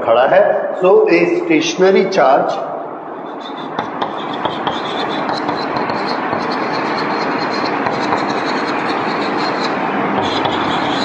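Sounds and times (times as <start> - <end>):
chalk scratching on chalkboard: 3.2 - 11.0
chalk taps: 3.2 - 11.0.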